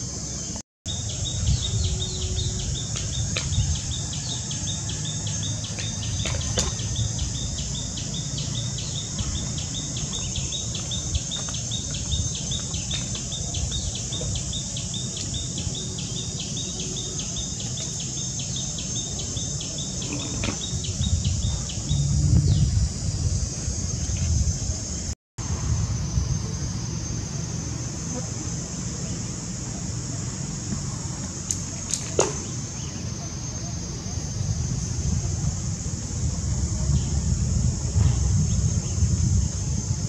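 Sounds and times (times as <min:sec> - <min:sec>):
high-pitched insect drone: 0:00.0 - 0:40.0
low rumble: 0:21.0 - 0:24.5.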